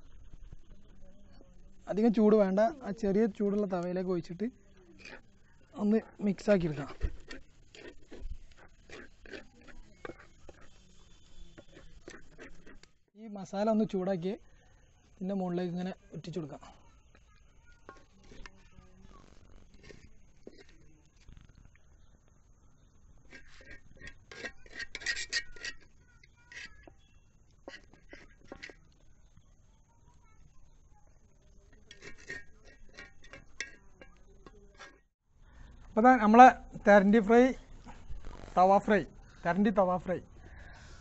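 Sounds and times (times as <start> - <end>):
metal spatula scraping a pan: 4.3 - 13.0, 16.7 - 21.2, 23.2 - 28.9, 31.4 - 35.1.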